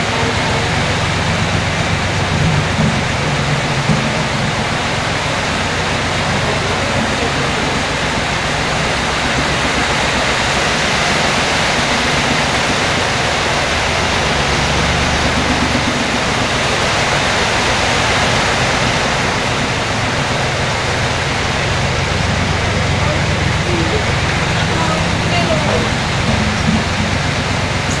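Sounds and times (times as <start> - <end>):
heavy rain: 0.0 - 28.0
road roller engine hum: 0.0 - 28.0.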